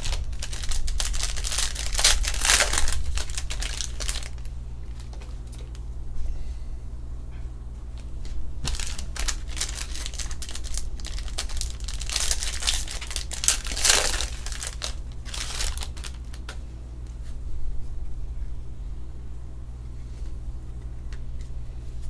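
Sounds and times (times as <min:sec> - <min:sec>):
foil wrapper tearing and crinkling: 0:00.0 - 0:05.8, 0:08.6 - 0:16.6
low steady hum: 0:00.0 - 0:22.0.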